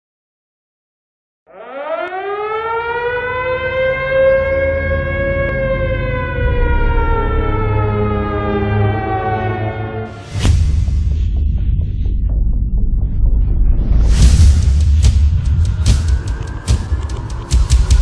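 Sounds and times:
siren-like wail: 1.5 - 10.5, 15.3 - 18.0
steady low rumble: 10.4 - 18.0.

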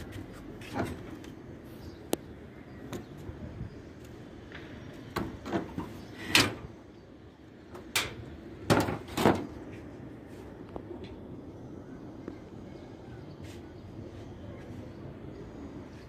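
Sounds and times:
metal roof sheets knocking: 8.6 - 9.5.

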